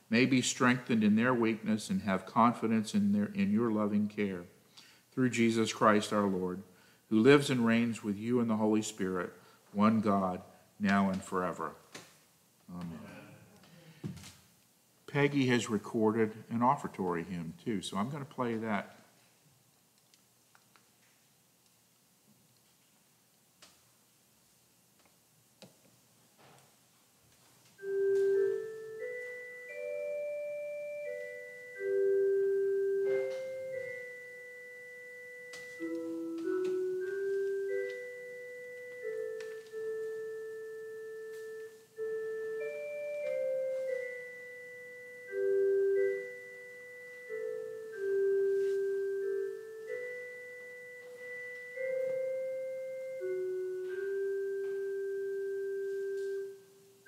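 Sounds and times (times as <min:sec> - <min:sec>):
hymn tune melody: 0:00.0 - 0:11.8, 0:27.8 - 0:57.0.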